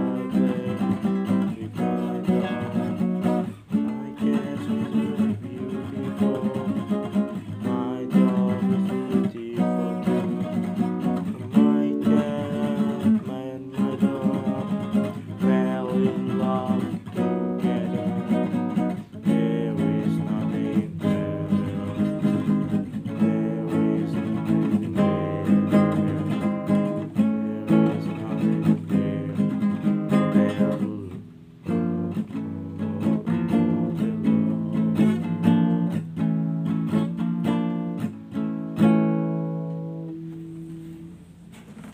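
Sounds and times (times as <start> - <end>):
classical guitar strummed chords: 0.0 - 41.9.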